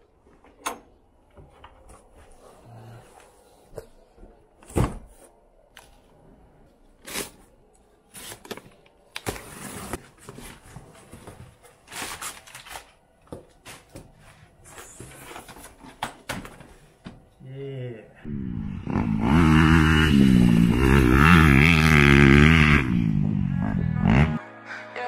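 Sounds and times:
packing paper rustling: 7.0 - 13.9.

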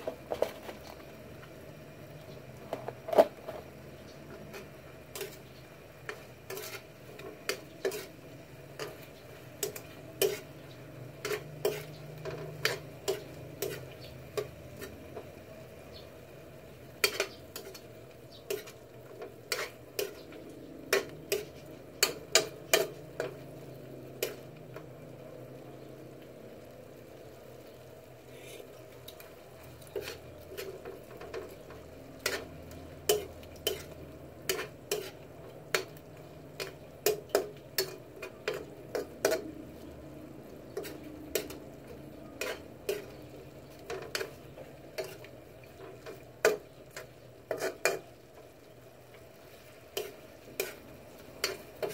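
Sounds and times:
sauce sizzling: 0.0 - 51.9
utensil scraping metal pan: 4.4 - 10.6, 11.2 - 15.1, 19.5 - 20.3, 32.2 - 35.9, 45.0 - 48.1.

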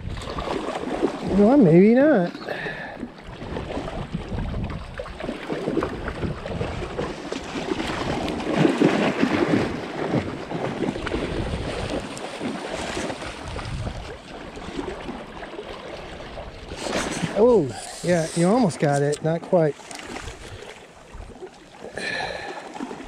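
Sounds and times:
wind rumble on microphone: 0.0 - 1.7, 3.2 - 12.2, 12.8 - 15.2
dog splashing through water: 5.1 - 15.9
stream rushing: 16.0 - 23.0.

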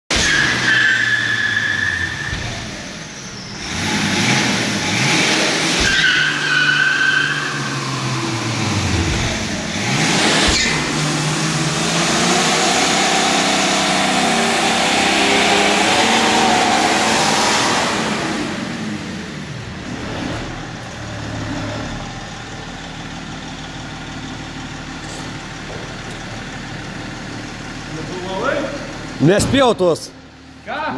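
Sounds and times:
car engine revving: 0.1 - 29.5
tyres squealing: 5.6 - 8.2.

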